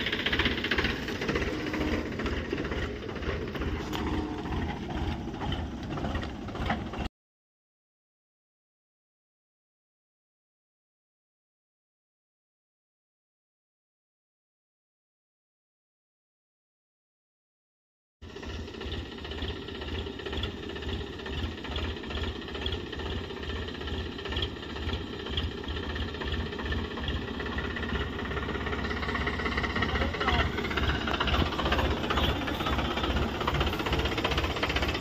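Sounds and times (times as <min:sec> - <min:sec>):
tractor diesel engine running: 0:00.0 - 0:07.1, 0:18.2 - 0:35.0.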